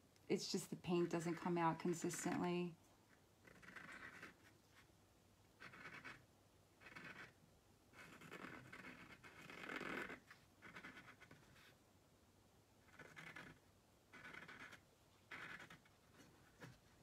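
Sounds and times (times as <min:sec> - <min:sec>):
marker tip scratching: 0:03.5 - 0:04.4, 0:05.6 - 0:06.2, 0:06.8 - 0:07.4, 0:08.0 - 0:11.5, 0:12.9 - 0:15.9.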